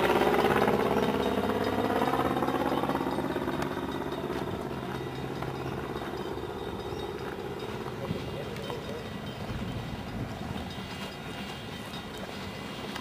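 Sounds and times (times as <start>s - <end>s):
steam locomotive running: 0.0s - 13.0s.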